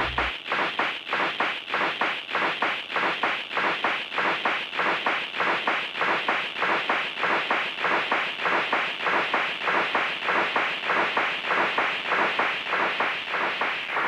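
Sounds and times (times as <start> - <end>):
electronic music loop: 0.0 - 0.3.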